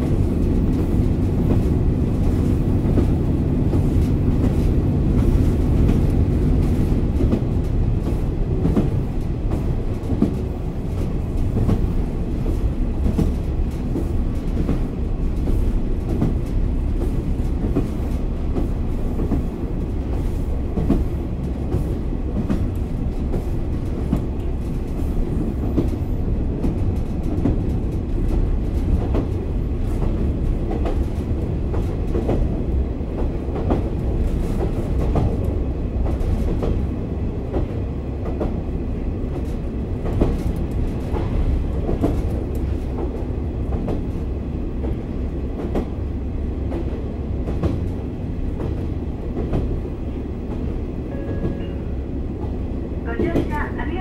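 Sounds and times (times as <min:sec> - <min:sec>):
deep diesel engine drone: 0:00.0 - 0:14.3
wheel-on-rail rumble: 0:00.0 - 0:54.0.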